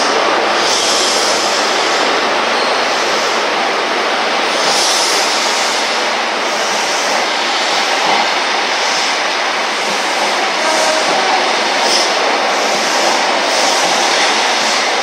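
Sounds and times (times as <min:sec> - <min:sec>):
train wheels on rails: 0:00.0 - 0:15.0.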